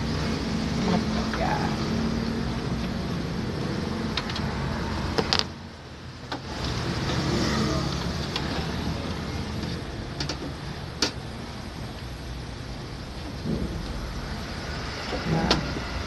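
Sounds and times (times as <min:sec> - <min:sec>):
steady low hum: 0:08.2 - 0:16.0.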